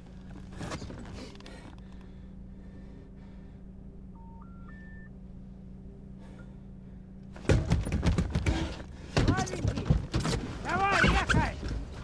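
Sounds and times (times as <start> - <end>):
rising telephone error tones: 4.1 - 5.2.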